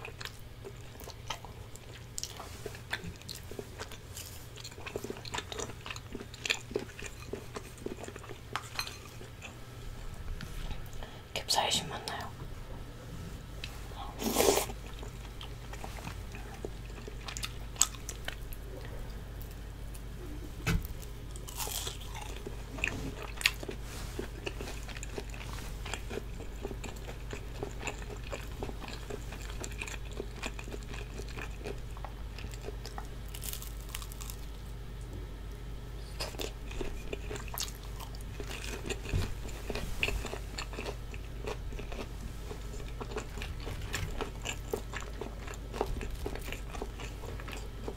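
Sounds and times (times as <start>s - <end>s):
food crunching: 0.0s - 9.6s, 13.6s - 20.1s, 21.2s - 34.6s, 36.2s - 47.9s
steady low hum: 0.0s - 47.9s
chewing and biting: 21.3s - 34.5s, 36.2s - 47.9s.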